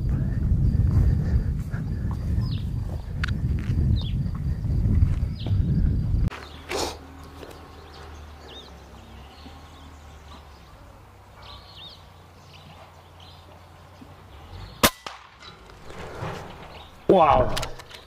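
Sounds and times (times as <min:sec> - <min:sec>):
bird chirps: 0:06.3 - 0:14.8
air rifle shot: 0:14.8 - 0:15.4.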